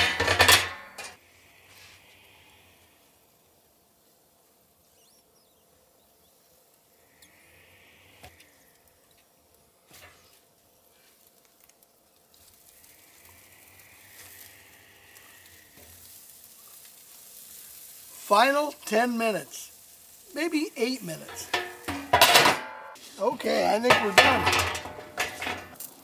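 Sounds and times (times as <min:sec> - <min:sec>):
ribs set on grill grate: 0:00.0 - 0:02.5, 0:09.8 - 0:26.0
faint sizzling: 0:00.0 - 0:26.0.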